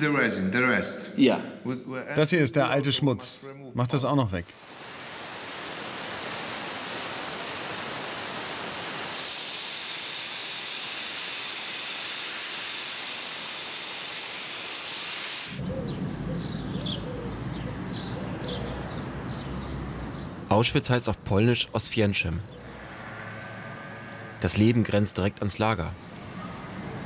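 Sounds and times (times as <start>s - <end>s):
dry-ice blaster hissing: 4.4s - 15.6s
bird chirping: 15.6s - 25.4s.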